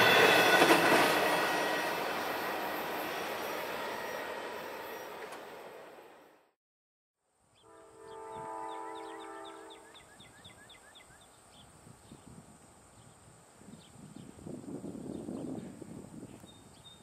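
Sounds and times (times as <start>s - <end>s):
faint rumble of train: 0.0s - 6.5s
distant locomotive horn: 7.6s - 10.0s.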